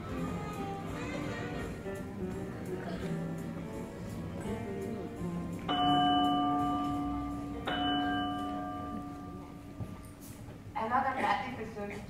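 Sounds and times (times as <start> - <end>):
soft musical notes: 0.0 - 10.6
deep bell ringing: 5.7 - 10.2.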